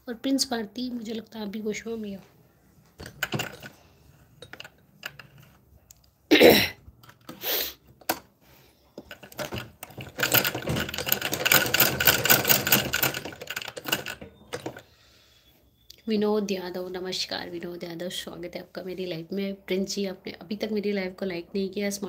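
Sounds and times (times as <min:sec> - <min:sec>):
sewing machine clattering: 0:03.0 - 0:05.6, 0:09.0 - 0:14.9.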